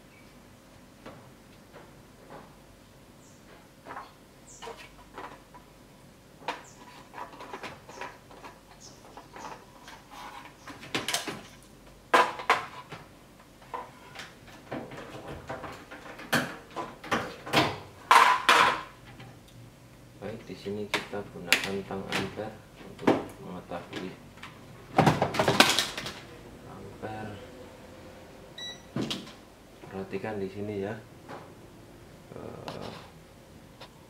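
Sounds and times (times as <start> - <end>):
plastic and metal parts clattering: 13.7 - 19.2, 25.0 - 26.3.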